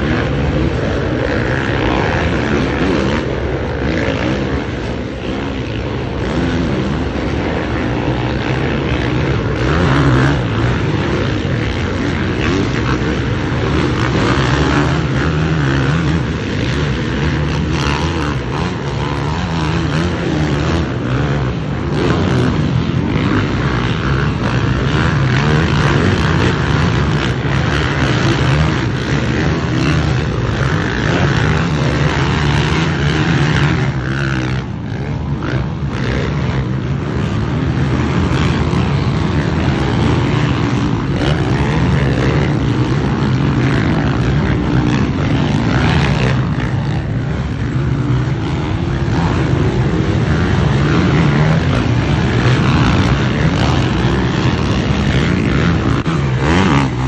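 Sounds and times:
motocross bike engines racing: 0.0 - 57.0.

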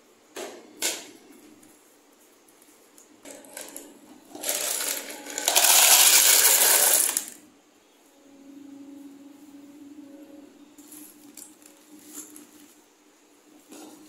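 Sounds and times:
dry pasta rattling into plastic: 3.3 - 7.4.

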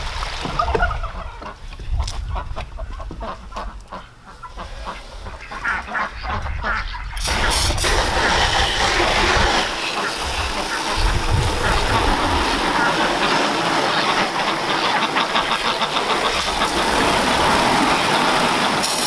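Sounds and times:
ducks calling: 0.4 - 19.0
hose spraying water: 7.2 - 19.0.

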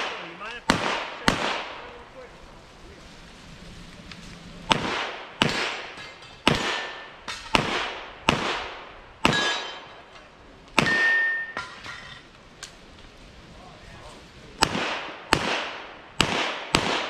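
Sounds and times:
loud pistol shots: 0.0 - 1.9, 4.7 - 10.0, 10.8 - 11.5, 14.6 - 17.0
metal target ringing: 9.2 - 10.1, 10.8 - 12.2.

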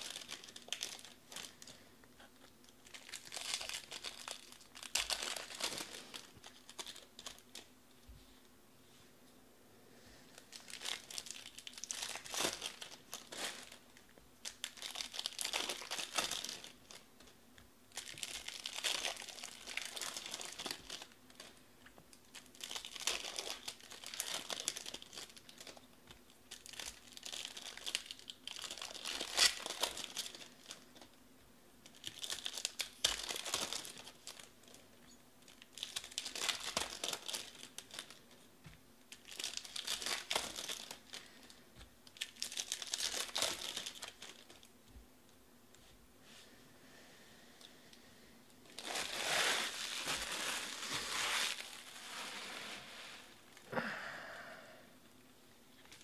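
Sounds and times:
plastic wrappers tearing and crinkling: 0.0 - 1.8, 2.4 - 7.7, 10.3 - 17.1, 17.9 - 31.2, 31.8 - 34.8, 35.4 - 38.4, 39.1 - 44.7, 48.6 - 53.7, 55.8 - 56.0.

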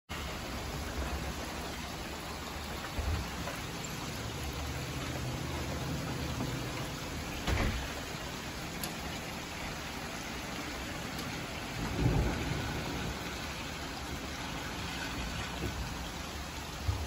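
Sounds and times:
steady rain falling: 0.1 - 17.0.

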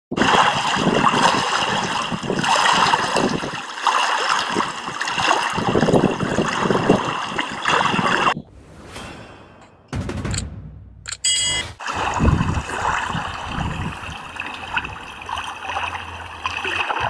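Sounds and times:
lake water lapping: 0.1 - 8.4, 11.8 - 17.0.

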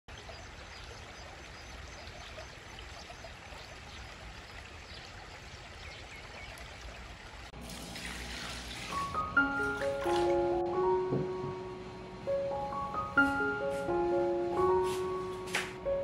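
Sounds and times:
water rushing along a channel: 0.1 - 11.3
water pouring into a metal basin: 7.1 - 10.4.

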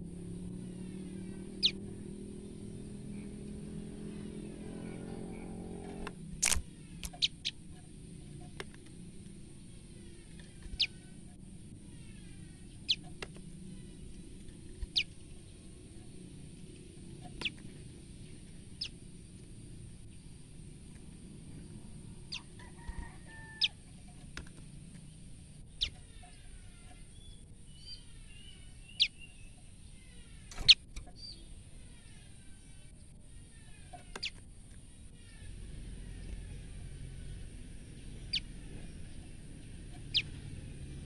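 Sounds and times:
low drone: 0.0 - 22.6
bird sharp chirps: 1.5 - 1.8, 6.5 - 7.6, 10.7 - 11.0, 12.2 - 13.1, 14.9 - 15.1, 25.7 - 31.4, 38.3 - 38.5, 40.0 - 40.4.

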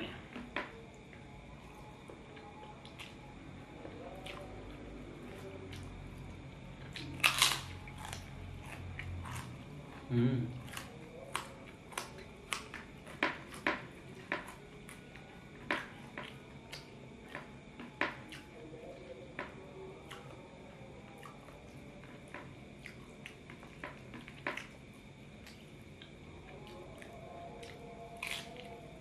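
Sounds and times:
person chewing noodles: 4.0 - 16.9, 21.1 - 28.8.

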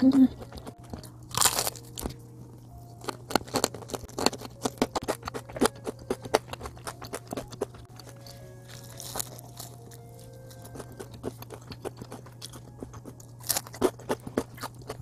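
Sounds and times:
crunch of biting fried chicken: 1.3 - 2.1, 3.0 - 9.8, 10.5 - 15.0.

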